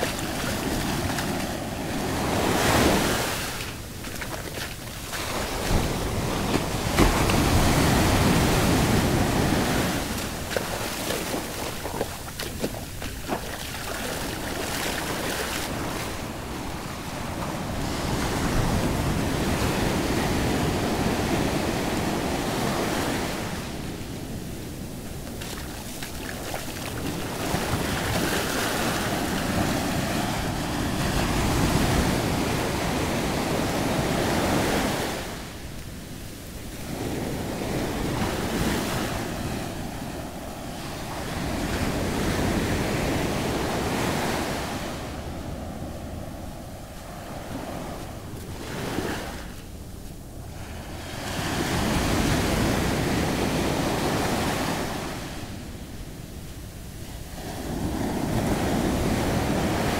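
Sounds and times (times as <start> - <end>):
ocean waves breaking on beach: 0.0 - 59.9.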